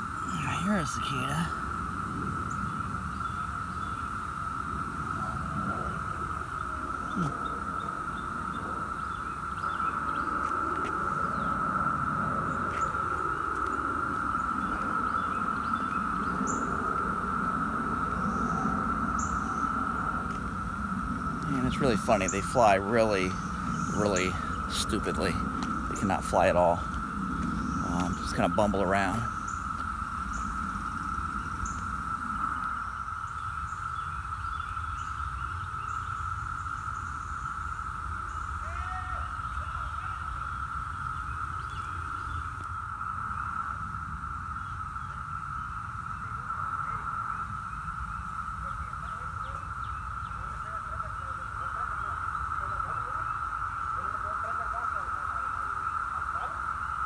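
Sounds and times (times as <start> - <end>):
low rumble: 0.0 - 33.5
cicadas droning: 0.0 - 57.0.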